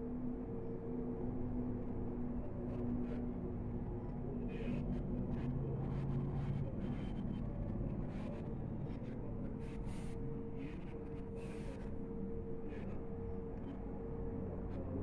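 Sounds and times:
low background hum and rumble: 0:00.0 - 0:15.0.

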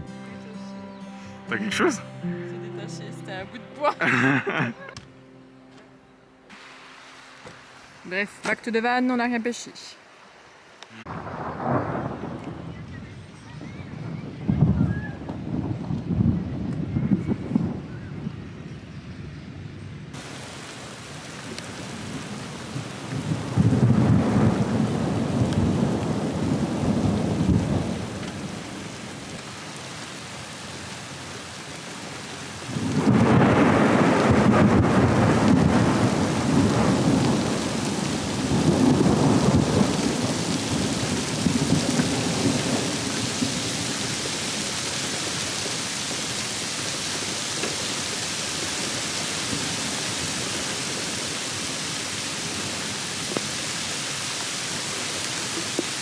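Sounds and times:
rain falling on river: 0:06.5 - 0:16.9, 0:20.1 - 0:56.0
thunder rumbling: 0:11.1 - 0:18.5, 0:20.2 - 0:31.0, 0:31.8 - 0:53.6.

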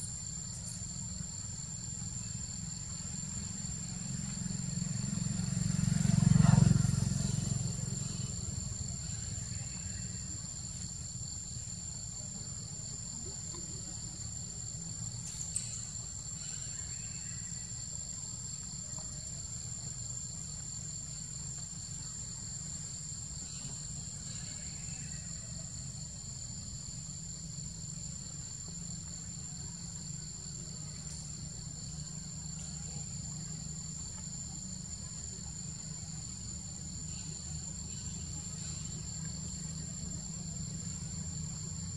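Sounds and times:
insects buzzing: 0:00.0 - 0:41.9
vehicle passing: 0:04.5 - 0:08.8.

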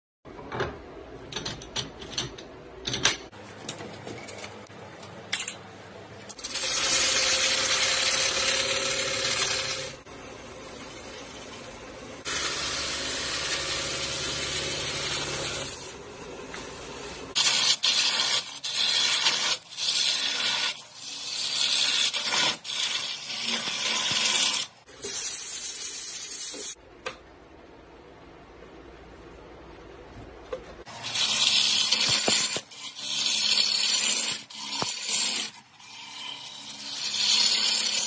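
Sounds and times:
gouge cutting spinning wood: 0:06.4 - 0:24.7, 0:30.9 - 0:38.0.

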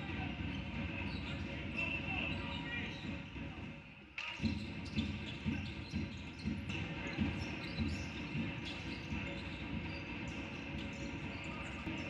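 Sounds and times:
arena crowd noise: 0:00.0 - 0:04.9, 0:06.7 - 0:12.0
basketball bouncing on hardwood: 0:04.4 - 0:11.2.

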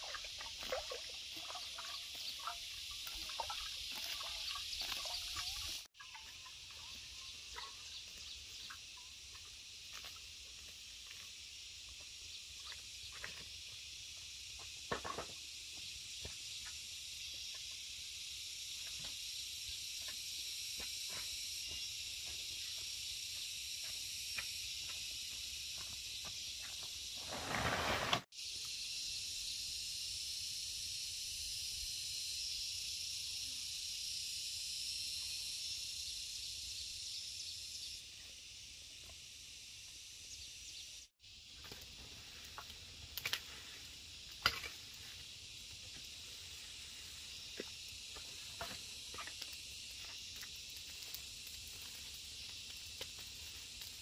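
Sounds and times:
high-pitched insect drone: 0:00.0 - 0:27.2, 0:28.3 - 0:54.0
rustling noise: 0:27.2 - 0:28.3.

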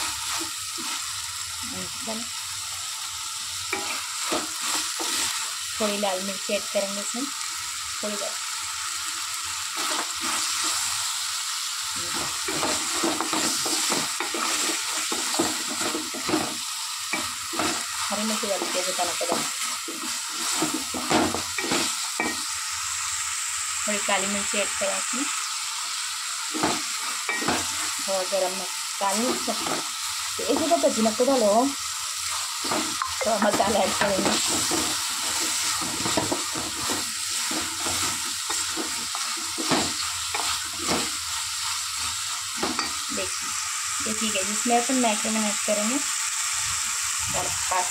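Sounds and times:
food sizzling in oil: 0:00.0 - 0:47.9
wooden spoon scraping pan: 0:32.3 - 0:41.7.

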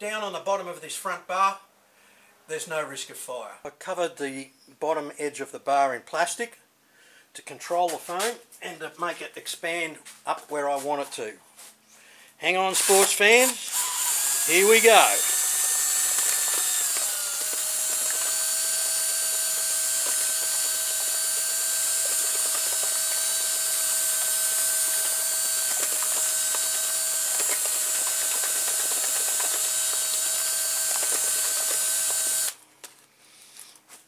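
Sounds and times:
cordless drill motor whine: 0:12.8 - 0:32.6.

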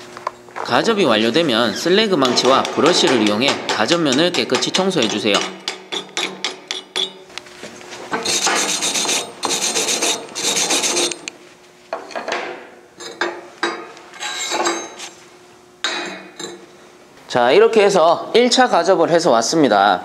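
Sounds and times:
steel brush scrubbing: 0:08.2 - 0:11.2.

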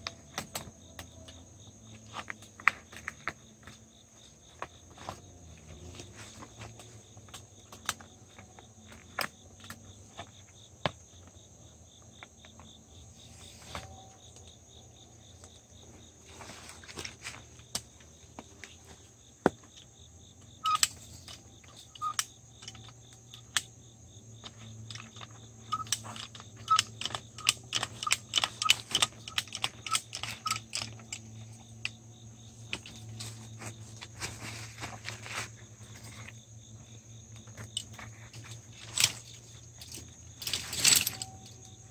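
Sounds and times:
insects droning: 0:00.0 - 0:41.9
metal tools clicking and clinking: 0:20.6 - 0:23.7, 0:24.4 - 0:32.0, 0:37.5 - 0:41.9.

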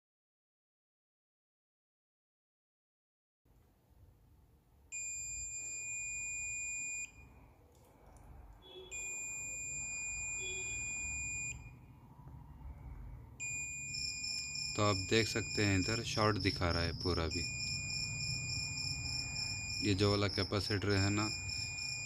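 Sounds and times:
multimeter continuity beep: 0:04.9 - 0:07.4, 0:08.6 - 0:12.0, 0:13.4 - 0:22.0.

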